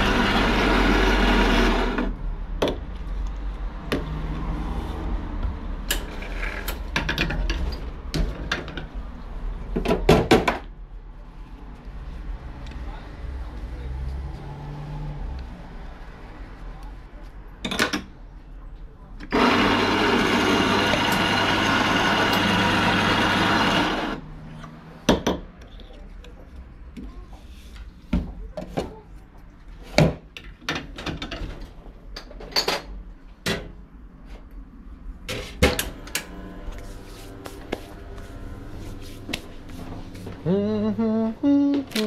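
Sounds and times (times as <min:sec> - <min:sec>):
espresso grinder running: 0:00.0 - 0:02.1, 0:19.3 - 0:24.2, 0:35.9 - 0:38.7.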